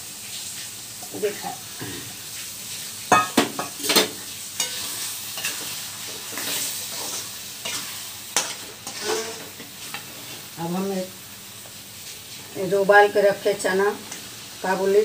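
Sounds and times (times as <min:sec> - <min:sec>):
masala sizzling: 0:00.0 - 0:15.0
spatula scraping a metal pan: 0:03.8 - 0:10.4.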